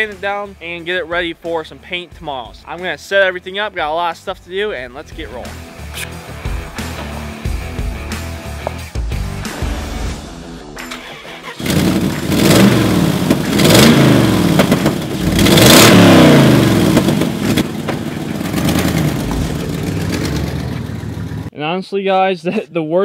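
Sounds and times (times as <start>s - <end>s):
truck engine starting and revving: 5.6s - 21.5s.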